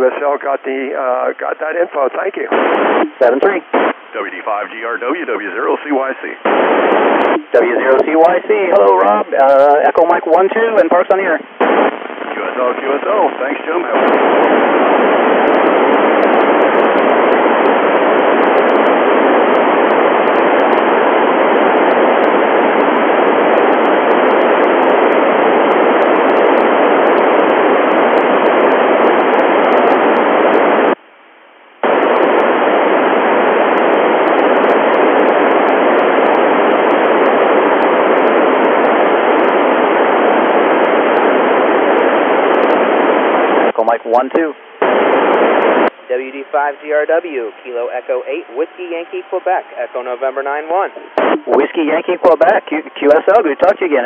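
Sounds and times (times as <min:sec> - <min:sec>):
radio receiver hiss: 0:00.0 - 0:54.0.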